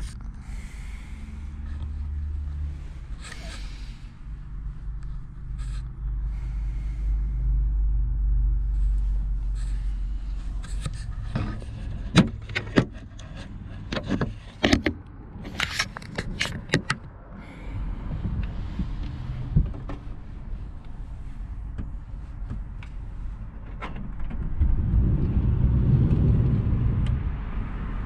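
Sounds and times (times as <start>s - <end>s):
steady low rumble: 0.0s - 28.0s
knocks clicks and rustles: 10.5s - 17.2s.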